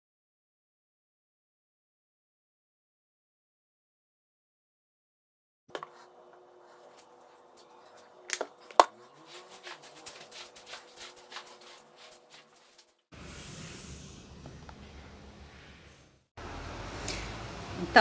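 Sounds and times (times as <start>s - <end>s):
broom sweeping tiled floor: 5.8s - 16.3s.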